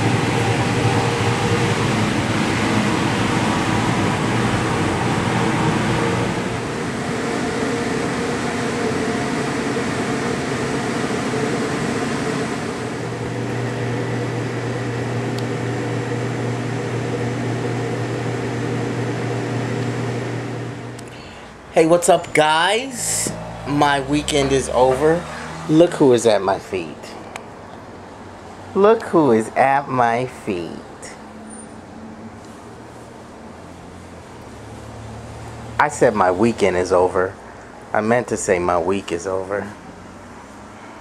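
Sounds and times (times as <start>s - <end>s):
ventilation and refrigeration hum: 0.0s - 41.0s.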